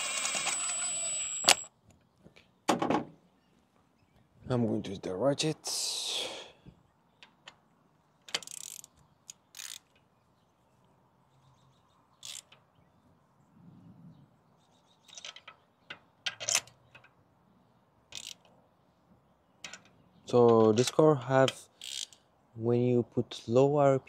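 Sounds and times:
ratchet wrench clicking: 0:08.3 - 0:09.9, 0:12.2 - 0:12.6, 0:18.1 - 0:18.5, 0:21.8 - 0:22.2.

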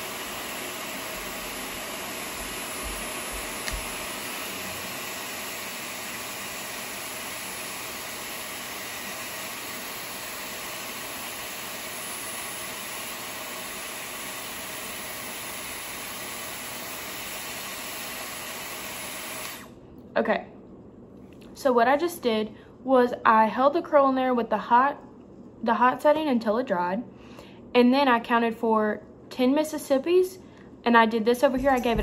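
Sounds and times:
hair styler blowing air: 0:00.0 - 0:19.8, 0:31.6 - 0:32.0.

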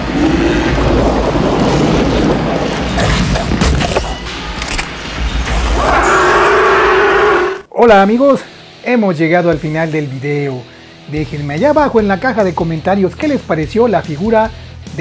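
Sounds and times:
demon growling roar: 0:00.0 - 0:02.1, 0:05.7 - 0:07.7
film soundtrack music: 0:00.0 - 0:15.0.

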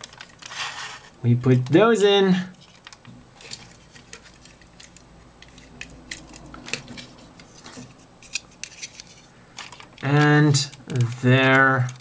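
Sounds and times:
plastic model parts clicking: 0:08.2 - 0:12.0.

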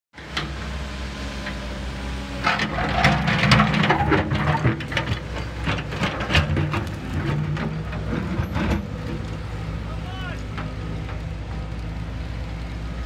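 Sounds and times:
excavator diesel engine running: 0:00.2 - 0:13.0
bucket knocking and clattering on stones: 0:02.5 - 0:07.8.

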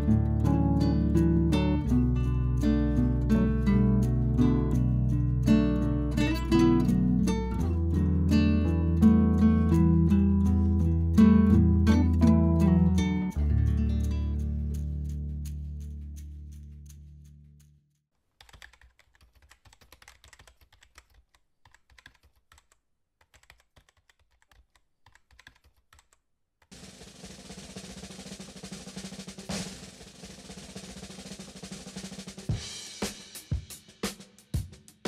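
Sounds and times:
background music: 0:00.0 - 0:17.1.

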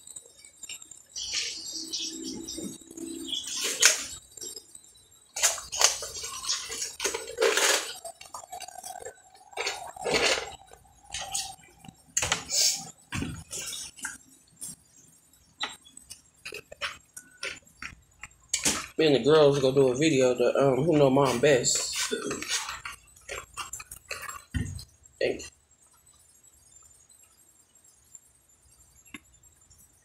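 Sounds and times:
chewing crunchy food: 0:05.3 - 0:11.9, 0:15.7 - 0:18.8, 0:22.0 - 0:24.5
utensils clinking on containers: 0:05.4 - 0:11.6, 0:21.0 - 0:24.5.

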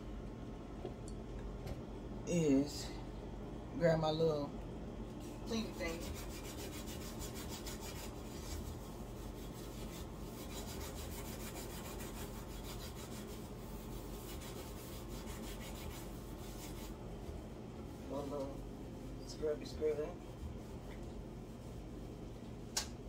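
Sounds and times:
sponge scrubbing a stovetop: 0:05.5 - 0:17.0, 0:19.2 - 0:22.2.

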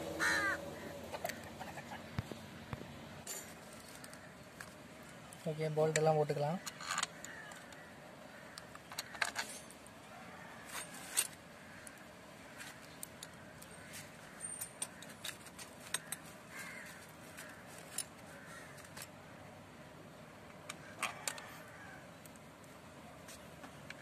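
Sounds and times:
small bolts clicking and clinking: 0:05.9 - 0:07.8, 0:08.6 - 0:09.9, 0:14.4 - 0:16.3.

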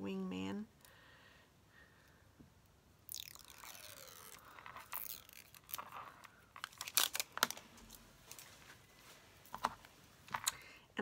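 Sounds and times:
plastic pen crinkling and scraping: 0:03.4 - 0:08.6, 0:09.4 - 0:10.6.

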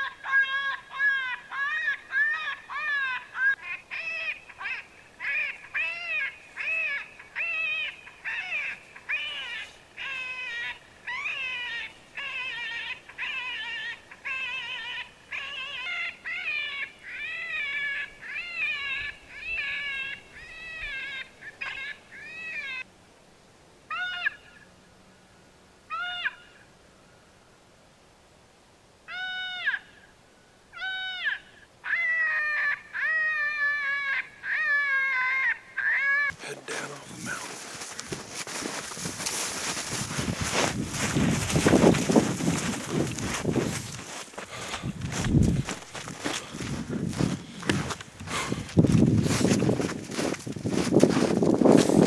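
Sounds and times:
animal distress cries from caller: 0:00.2 - 0:22.8, 0:23.9 - 0:24.6, 0:25.9 - 0:26.6, 0:30.8 - 0:37.4.

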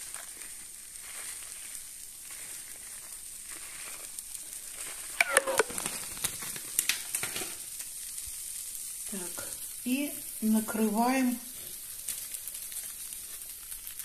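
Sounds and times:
sharp clicks and crinkles: 0:00.0 - 0:08.2, 0:11.5 - 0:14.0
frying pan sizzle: 0:00.0 - 0:14.0.

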